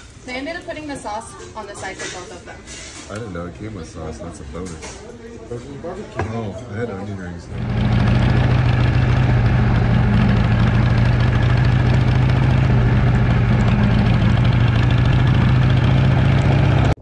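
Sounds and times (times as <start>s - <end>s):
motorcycle engine cruising: 7.4s - 17.0s.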